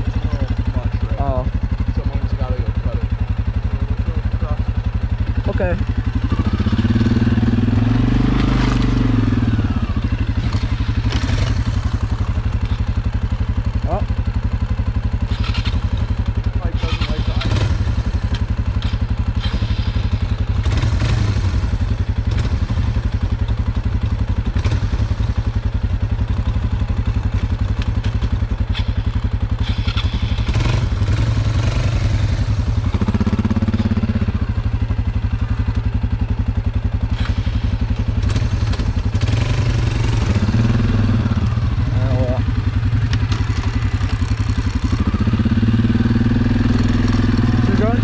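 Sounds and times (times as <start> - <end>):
atv engines idling: 0.0 - 48.0.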